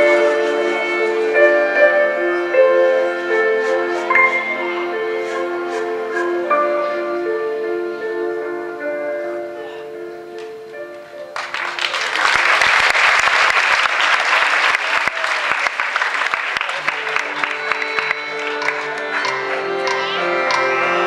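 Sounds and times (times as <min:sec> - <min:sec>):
soft music: 0:00.0 - 0:12.2, 0:16.7 - 0:21.0
audience applauding: 0:11.4 - 0:21.0.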